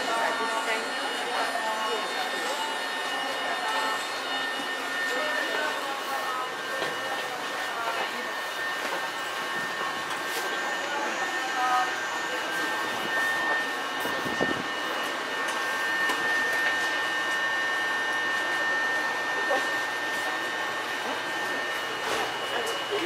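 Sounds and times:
train humming with high whine: 0.0 - 23.0.

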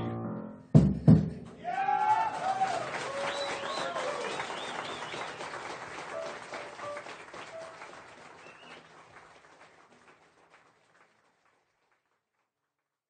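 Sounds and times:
audience cheering: 1.6 - 9.3
audience applauding: 1.6 - 12.6.

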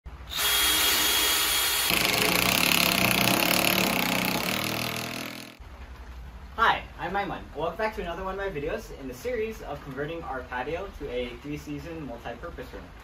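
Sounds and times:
cordless drill running into wood: 0.3 - 5.6.

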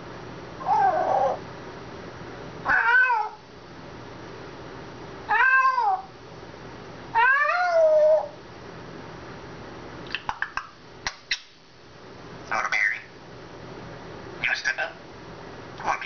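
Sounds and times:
parrot meowing: 0.6 - 1.4, 2.6 - 3.4, 5.3 - 6.1, 7.1 - 8.3.

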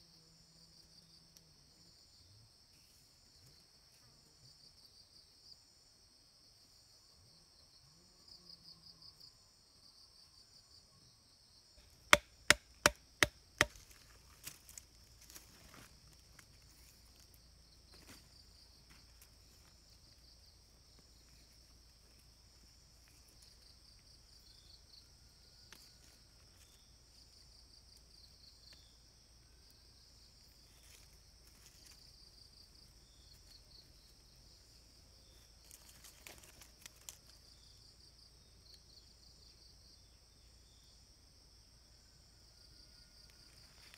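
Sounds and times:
insect chorus: 0.0 - 43.9
blade chopping wood: 12.1 - 14.0.

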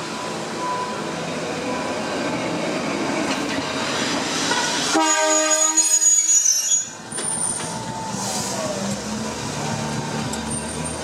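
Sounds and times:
tram rumbling past: 0.0 - 11.0
tram horn blast: 4.5 - 6.1.

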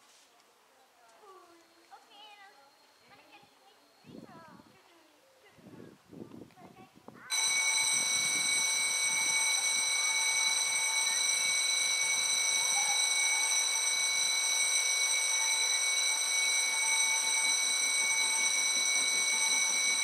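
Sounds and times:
level crossing electronic ringing: 7.3 - 20.0.

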